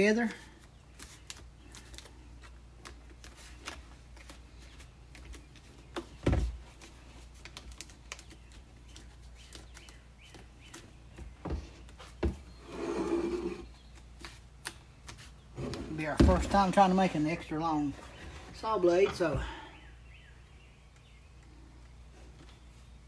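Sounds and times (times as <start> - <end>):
plastic jug scraping rustle: 12.5 - 13.8.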